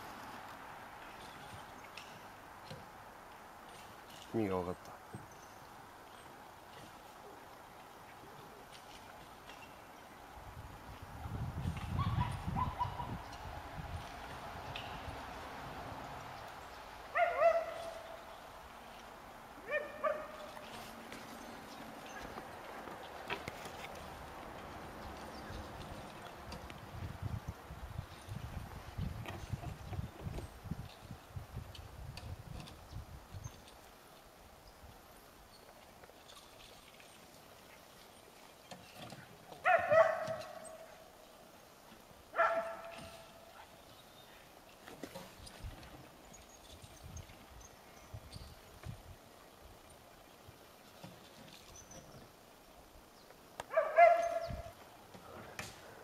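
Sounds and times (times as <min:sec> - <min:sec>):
dog barking: 0:12.0 - 0:13.1, 0:17.1 - 0:18.0, 0:19.6 - 0:20.4, 0:39.6 - 0:40.8, 0:42.4 - 0:43.2, 0:53.7 - 0:54.7.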